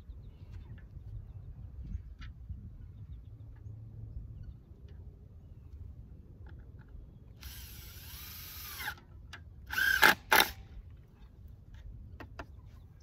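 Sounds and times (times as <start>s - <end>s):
power drill driving screws: 7.4s - 9.0s, 9.7s - 10.6s.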